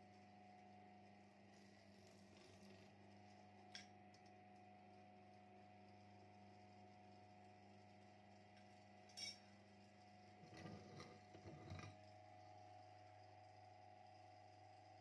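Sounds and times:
faint steady hum: 0.0 - 15.0
light metallic clink: 9.1 - 9.5.

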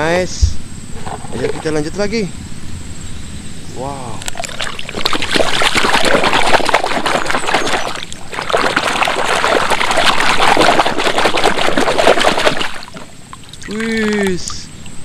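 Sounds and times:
muddy water splashing: 4.2 - 14.8.

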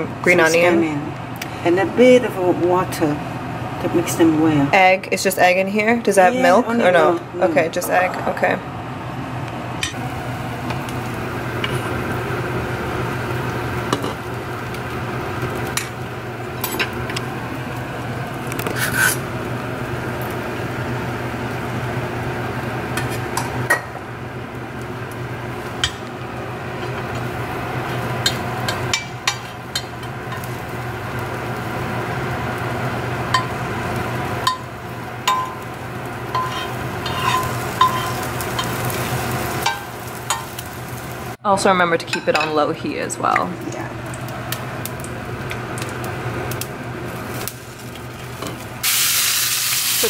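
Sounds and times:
egg sizzling in hot oil: 9.9 - 41.4, 44.0 - 50.0
metal ladle scraping pan: 36.3 - 38.8.

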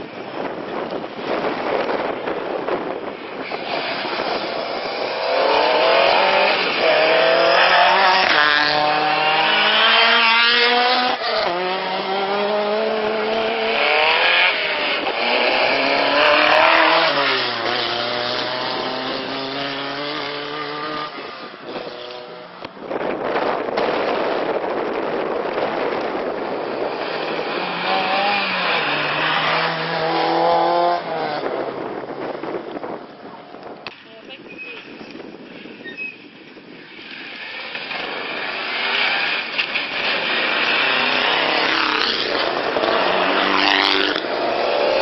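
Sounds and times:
rally car engine at full throttle: 0.0 - 34.0, 36.5 - 45.0.

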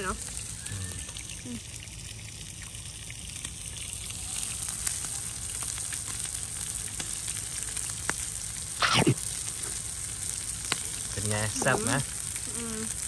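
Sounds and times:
food sizzling in a frying pan: 0.0 - 13.0.

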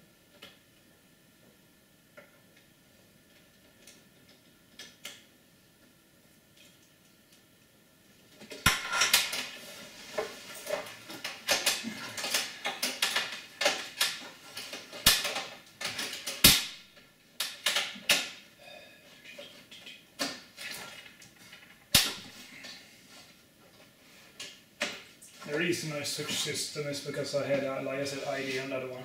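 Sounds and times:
metal clicks and clatter: 10.2 - 16.6.

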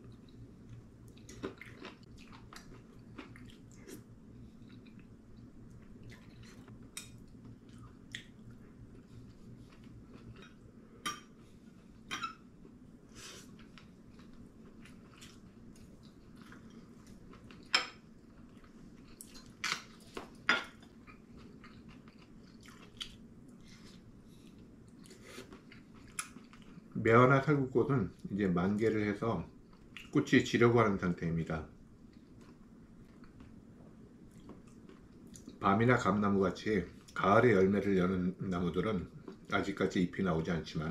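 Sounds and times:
faint room hum: 0.0 - 40.9
chewing: 0.1 - 10.6, 18.3 - 26.9.

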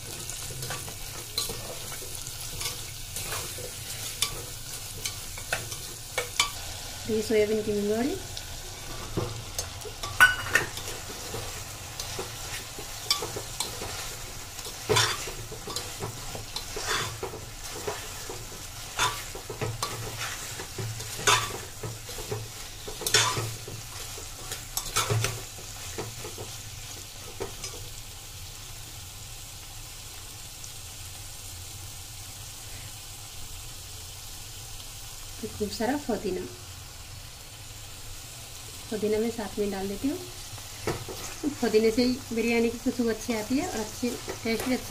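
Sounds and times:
vegetables sizzling in oil: 0.0 - 44.9
spatula scraping a pot: 8.8 - 26.5.

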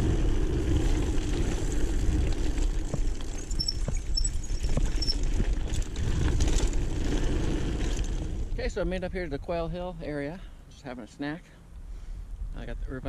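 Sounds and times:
bike tyre rumble on dirt: 0.0 - 10.2
bike knocks and rattles: 0.1 - 8.4.

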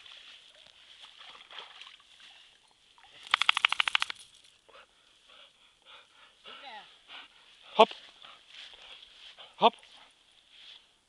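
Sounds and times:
water sloshing and splashing: 0.0 - 3.3
loud fast rattle of clicks: 3.3 - 4.2.

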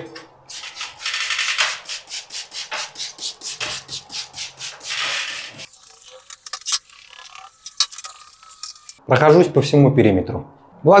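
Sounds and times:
water spray hissing: 1.7 - 7.5.

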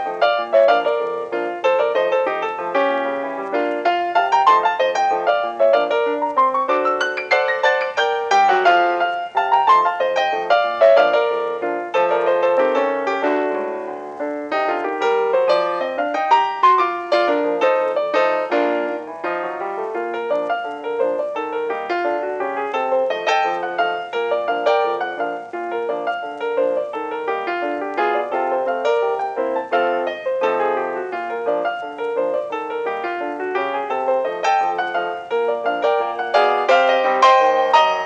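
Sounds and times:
fast piano run: 0.0 - 38.0.

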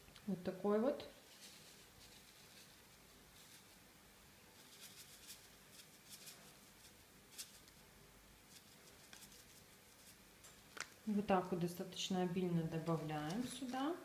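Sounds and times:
paper packet rustling: 1.2 - 3.8, 4.6 - 7.8, 8.5 - 11.1, 12.8 - 14.0.

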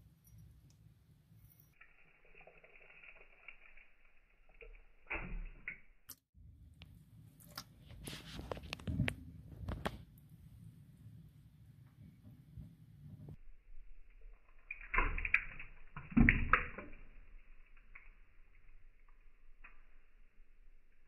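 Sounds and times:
wet clicks and squishes: 1.7 - 7.8, 14.0 - 20.3.

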